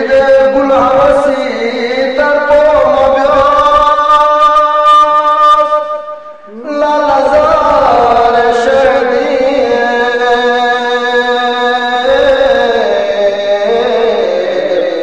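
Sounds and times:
man singing long notes: 0.0 - 15.0.

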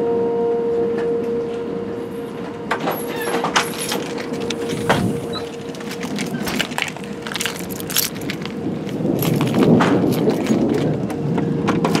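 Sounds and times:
warning siren steady tone: 0.0 - 7.7
sharp clicks and rattles: 3.3 - 11.2.

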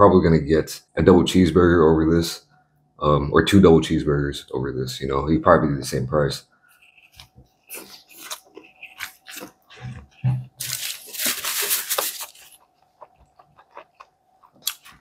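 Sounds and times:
chewing with wet smacks: 6.8 - 10.4, 12.3 - 15.0
paper crinkling: 6.8 - 12.8.

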